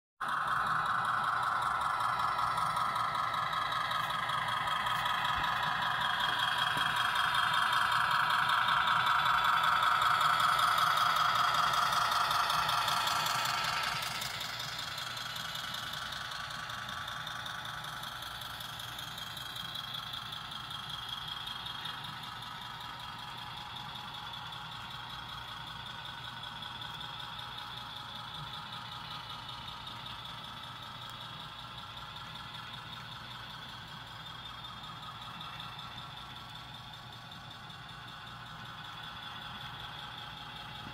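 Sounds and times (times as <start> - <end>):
model train locomotive passing: 0.2 - 40.9.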